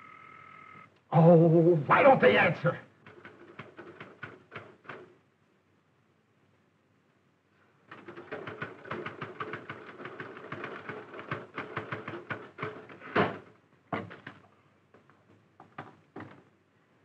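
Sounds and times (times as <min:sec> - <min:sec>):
rapid clatter of sharp clicks: 0:03.0 - 0:05.2, 0:07.9 - 0:14.5
scattered knocks: 0:03.0 - 0:05.2, 0:15.6 - 0:16.5.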